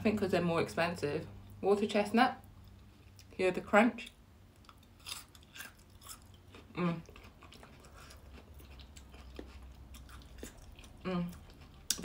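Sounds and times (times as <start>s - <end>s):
crunchy chewing: 4.6s - 12.0s.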